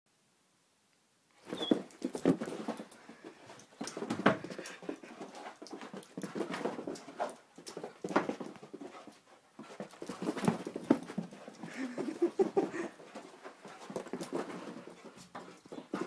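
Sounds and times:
dog scuffling and snuffling: 1.4 - 16.0
dog whimpering: 1.5 - 1.9.

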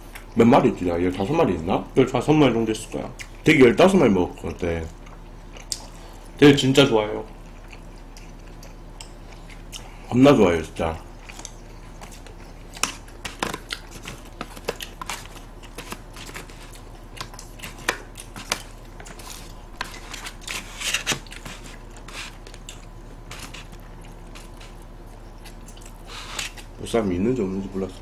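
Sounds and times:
person chewing: 4.4 - 6.4, 7.3 - 10.1, 11.0 - 26.8.

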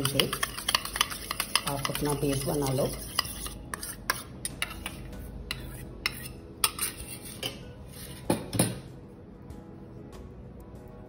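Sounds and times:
metal spoon scraping steel bowl: 0.0 - 8.3.

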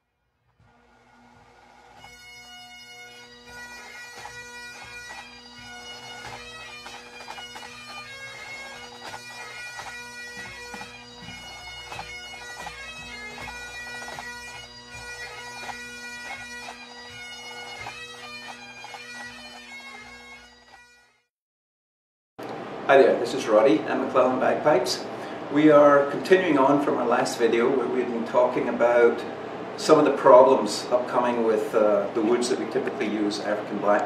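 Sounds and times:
bagpipe playing a tune: 0.6 - 21.3.

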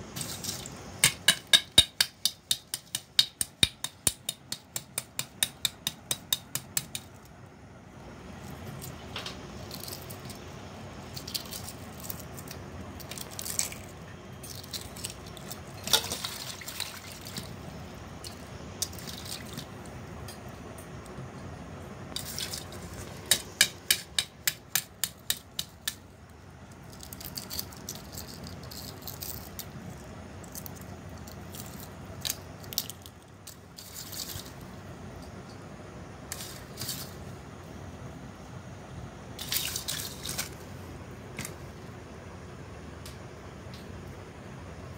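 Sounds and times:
eggshell crackling: 8.3 - 21.2, 22.0 - 34.8
water dripping and splashing: 14.5 - 17.6.

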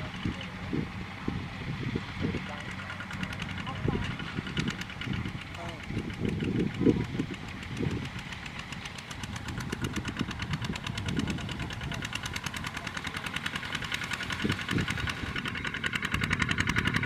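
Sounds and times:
diesel engine chugging: 0.0 - 17.0.

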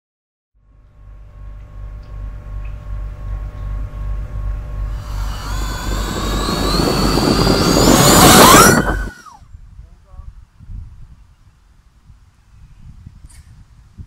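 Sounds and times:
deep rumble: 1.2 - 9.4
quadcopter motors whining: 4.8 - 9.4.

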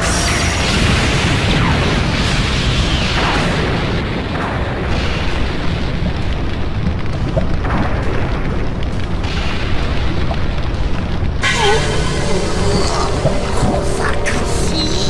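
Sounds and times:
deep rumble of explosions: 0.0 - 15.0.

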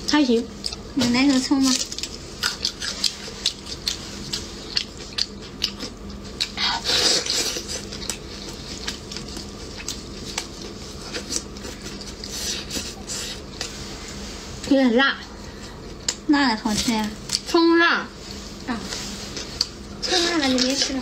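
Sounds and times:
chewing: 0.6 - 13.7.

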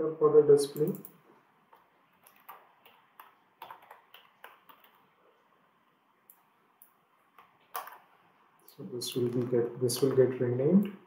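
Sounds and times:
computer keyboard typing: 0.8 - 1.2, 2.2 - 5.1.

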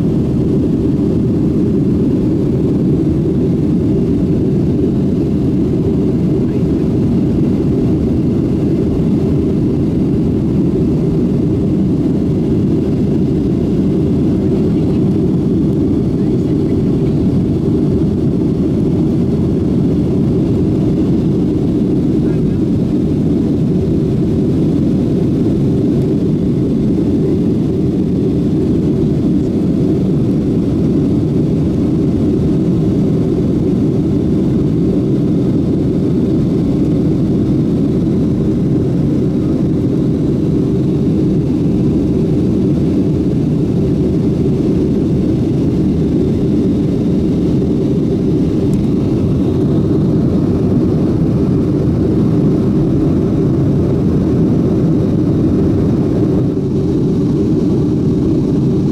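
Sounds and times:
jet engines droning: 0.0 - 58.9.

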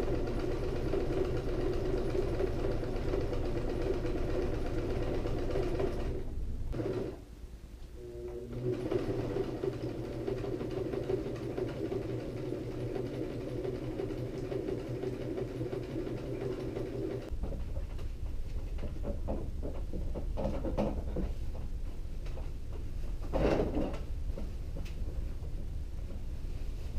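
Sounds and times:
sewing machine stitching: 0.0 - 7.2, 8.0 - 17.4.

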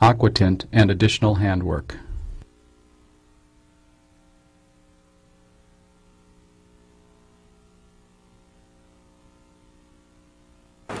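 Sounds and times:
faint electrical hum: 0.0 - 11.0
low hiss: 0.0 - 11.0.

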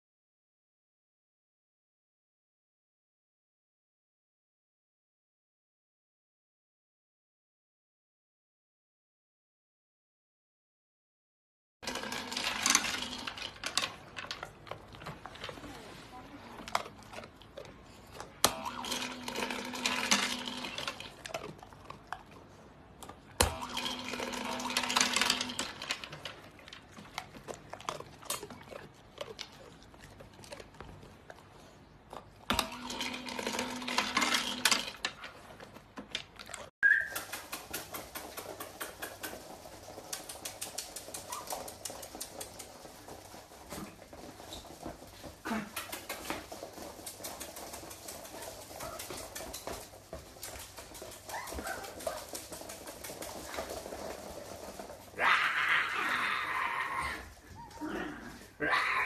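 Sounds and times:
kibble rattling: 11.8 - 22.4, 23.1 - 31.1, 32.5 - 55.3
paws pattering on wooden floor: 37.2 - 55.2.

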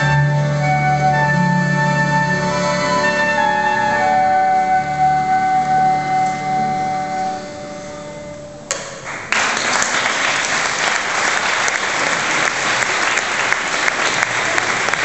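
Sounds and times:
music: 0.0 - 9.4
audience applauding: 9.0 - 15.0.

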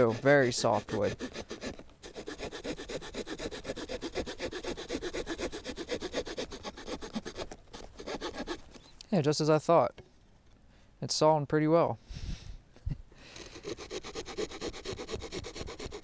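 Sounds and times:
small saw cutting wood: 0.0 - 8.9, 13.3 - 16.0.

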